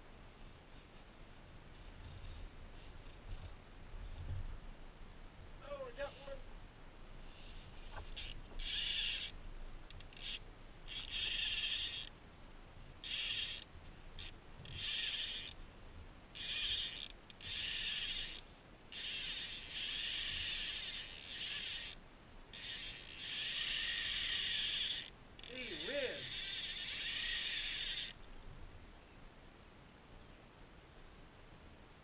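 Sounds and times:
fishing reel drag ratcheting: 0:07.4 - 0:12.1, 0:13.0 - 0:15.6, 0:16.4 - 0:28.2.

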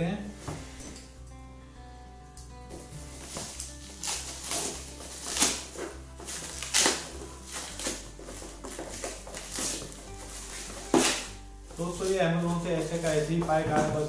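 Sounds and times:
plastic shrink wrap crinkling: 0:03.0 - 0:14.0.

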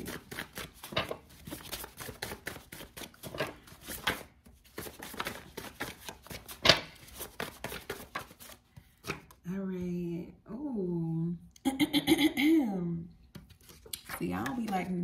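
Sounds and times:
cards being shuffled: 0:00.0 - 0:09.4, 0:13.3 - 0:15.0.

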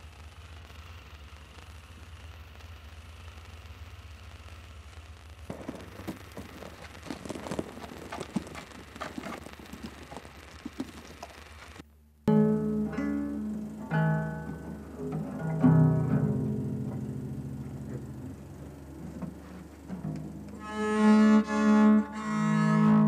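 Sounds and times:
low hum with hiss: 0:00.0 - 0:23.0
plucked string: 0:12.3 - 0:23.0.

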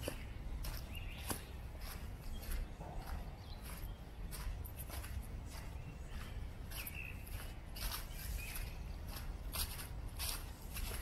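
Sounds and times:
footsteps crunching on dry leaves: 0:00.0 - 0:11.0.

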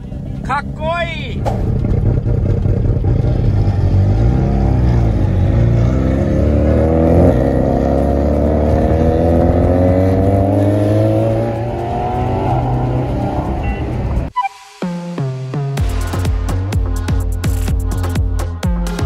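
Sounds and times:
car engines accelerating hard: 0:00.0 - 0:14.3.

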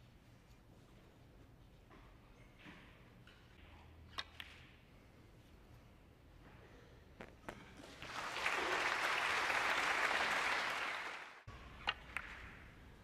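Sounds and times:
audience applauding: 0:07.9 - 0:11.5.

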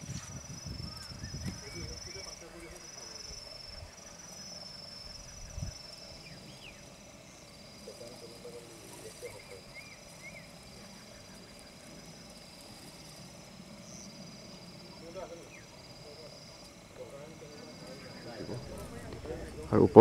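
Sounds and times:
insects trilling: 0:00.0 - 0:20.0
low thump: 0:18.5 - 0:20.0.

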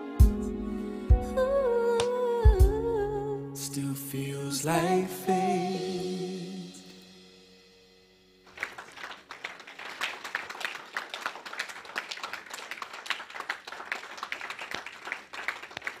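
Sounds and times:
held music chord: 0:00.0 - 0:08.5
crowd applause: 0:08.5 - 0:16.0.

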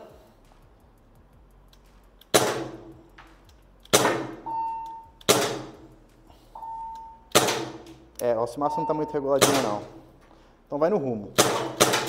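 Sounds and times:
airsoft pistol shots: 0:02.3 - 0:02.9, 0:03.9 - 0:04.5, 0:05.2 - 0:05.8, 0:07.3 - 0:07.9, 0:09.4 - 0:10.0, 0:11.3 - 0:12.0
high ringing tone: 0:06.6 - 0:07.2, 0:08.5 - 0:09.4.

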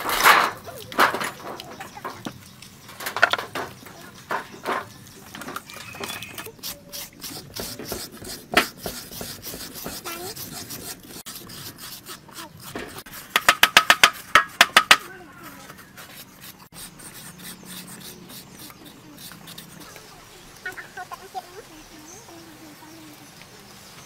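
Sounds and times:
shredder scraping pumpkin flesh: 0:05.7 - 0:14.3.

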